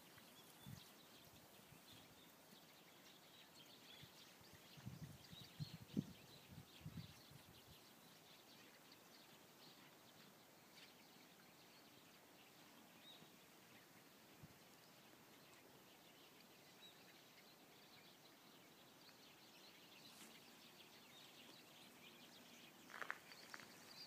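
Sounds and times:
distant birds chirping: 0.0s - 24.0s
wind gusts on microphone: 4.4s - 7.8s.

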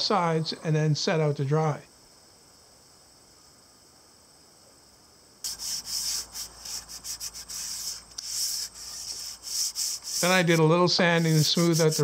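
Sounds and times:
hand sanding wood: 5.5s - 12.0s.

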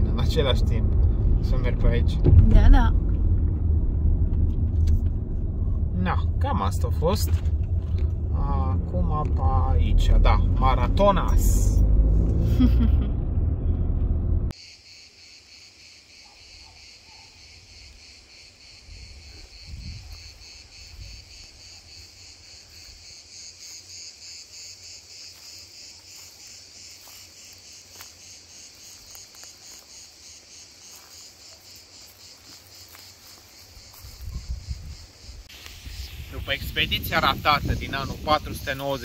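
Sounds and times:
crickets chirping: 0.0s - 12.0s, 14.5s - 39.0s
low thumps: 0.0s - 14.5s.

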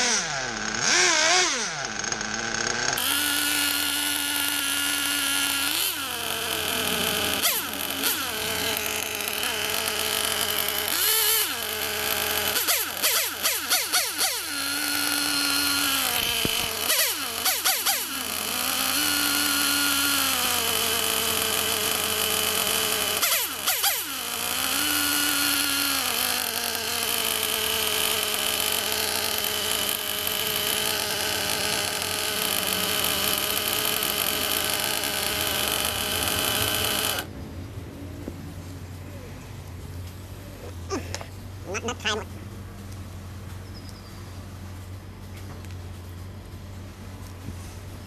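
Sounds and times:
model engine running: 0.0s - 37.4s.

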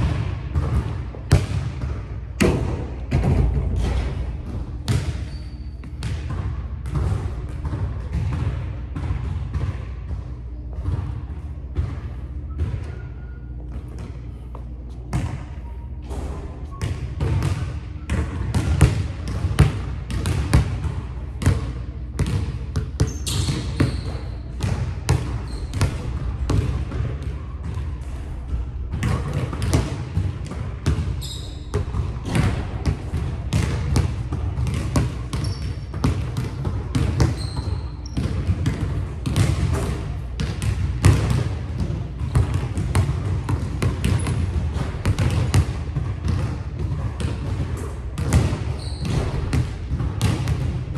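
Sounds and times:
sneaker squeaks: 4.8s - 6.4s, 10.7s - 18.8s, 22.7s - 26.2s, 31.0s - 32.5s, 35.1s - 39.5s, 48.3s - 49.6s
basketball bouncing on hardwood: 16.8s - 27.8s, 31.7s - 50.8s.

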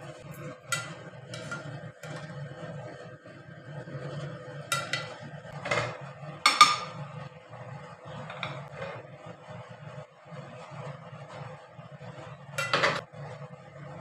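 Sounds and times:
metal spoon scraping cooking pot: 0.2s - 3.0s, 3.8s - 7.1s.

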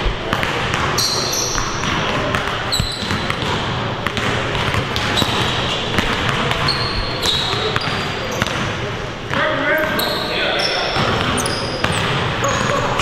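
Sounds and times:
basketballs bouncing on hardwood: 0.0s - 10.1s, 11.0s - 13.0s
sneaker squeaks: 0.9s - 3.6s, 4.5s - 8.9s, 9.6s - 13.0s.

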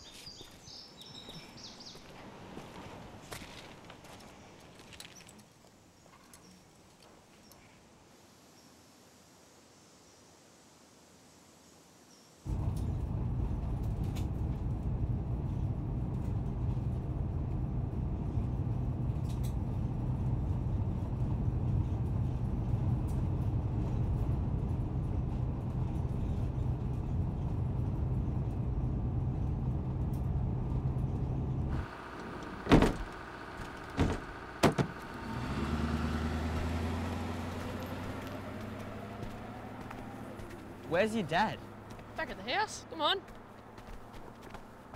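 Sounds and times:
bus engine drone: 12.5s - 44.9s
engine starting and revving: 31.7s - 40.8s
sharp knocks: 32.6s - 33.1s, 33.9s - 35.0s.

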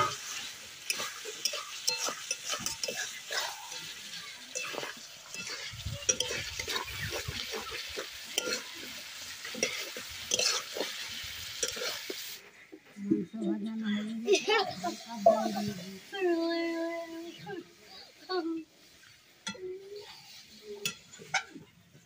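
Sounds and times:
spatula scraping a metal pot: 0.0s - 12.2s
chicken sizzling in a pot: 0.0s - 12.8s, 14.2s - 22.0s.

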